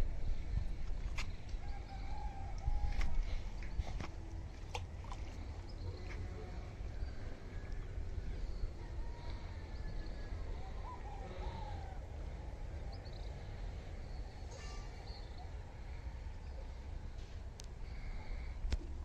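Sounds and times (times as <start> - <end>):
wind rumble on microphone: 0.0 - 14.3
faint bird calls: 1.2 - 17.2.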